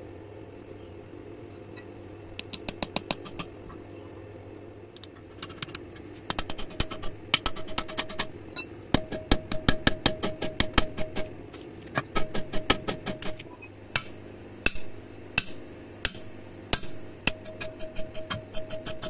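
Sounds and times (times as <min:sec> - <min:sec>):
low steady hum: 0:00.0 - 0:19.0
hammer tapping chisel on steel: 0:02.4 - 0:03.5, 0:06.3 - 0:08.3, 0:14.0 - 0:19.0.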